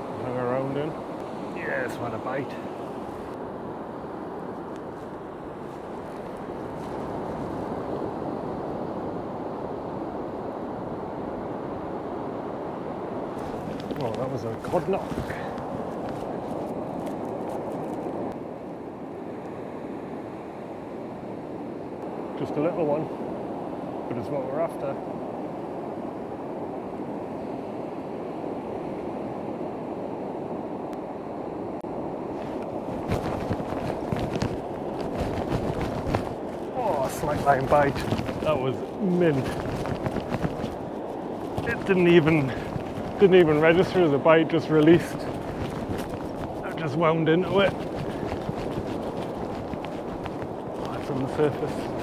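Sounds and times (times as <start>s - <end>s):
wind on microphone: 0.0s - 19.3s, 32.0s - 52.0s
surf breaking on shore: 13.3s - 18.1s, 32.3s - 52.0s.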